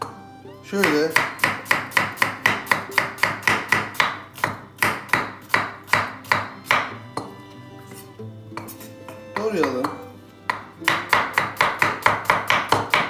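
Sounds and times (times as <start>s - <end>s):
soft background music: 0.0s - 13.0s
knife slicing on wooden board: 6.7s - 11.8s.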